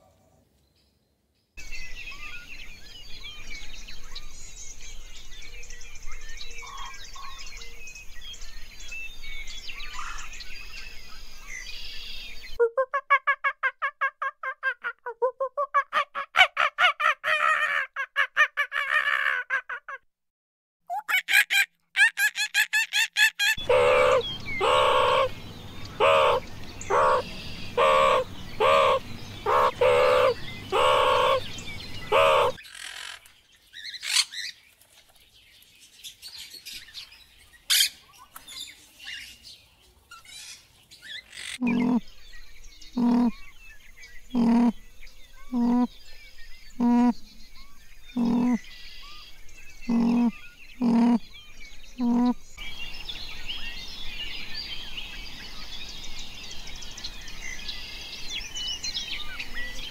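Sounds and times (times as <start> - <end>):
fast warbling bird call: 12.6 - 20.0, 20.9 - 32.6, 41.4 - 42.1, 43.0 - 43.4, 44.4 - 44.8, 45.5 - 45.9, 48.2 - 48.6, 49.9 - 51.2, 52.0 - 52.4
loud fowl calls: 21.0 - 32.6
low animal call: 23.6 - 32.6, 41.6 - 42.1, 43.0 - 43.4, 44.3 - 44.8, 45.5 - 45.9, 46.8 - 47.2, 48.2 - 48.6, 49.9 - 51.2, 52.0 - 52.4
quick pulsed calls: 41.6 - 42.0, 43.0 - 43.3, 44.4 - 44.8, 45.5 - 45.9, 46.8 - 47.2, 48.2 - 48.6, 49.9 - 51.2, 52.0 - 52.4.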